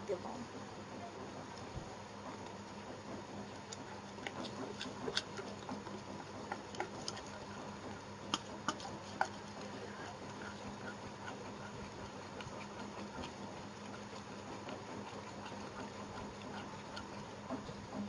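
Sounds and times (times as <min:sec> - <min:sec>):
whisk clicking against bowl: 0:03.7 - 0:17.6.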